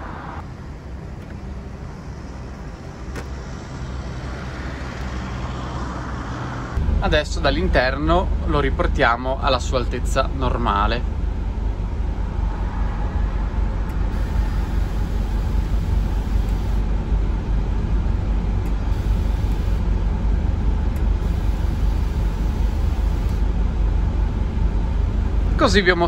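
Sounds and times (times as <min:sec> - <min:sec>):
bus engine idling: 0:00.0 - 0:05.4, 0:06.8 - 0:26.0
air suspension hissing: 0:13.9 - 0:16.9, 0:18.7 - 0:19.9, 0:21.0 - 0:23.5.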